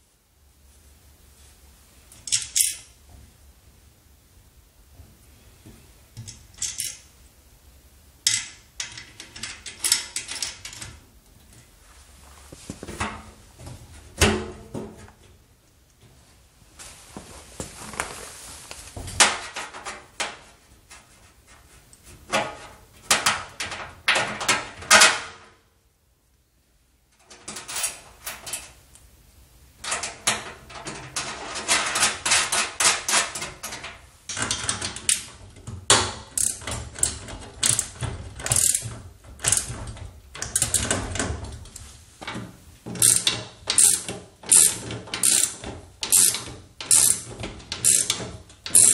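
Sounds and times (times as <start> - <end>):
metal clicks and clinks of bolts: 2.2 - 2.9, 6.2 - 7.1, 8.2 - 10.9, 43.0 - 48.9.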